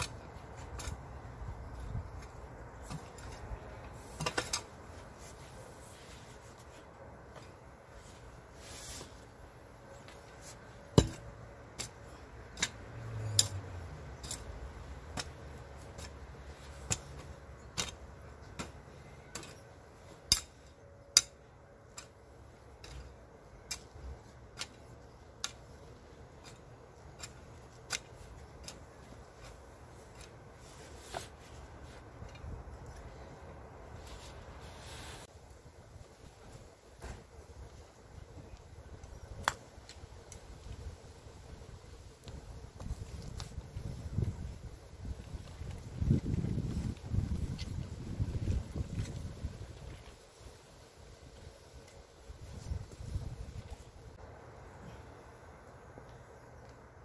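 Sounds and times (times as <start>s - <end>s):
hoe chopping into soil: 10.9s - 21.3s.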